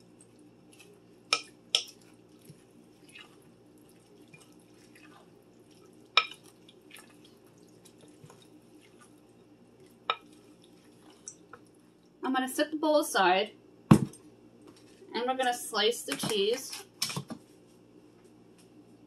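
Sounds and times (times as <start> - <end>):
spoon stirring wet mixture: 0.1 - 12.2.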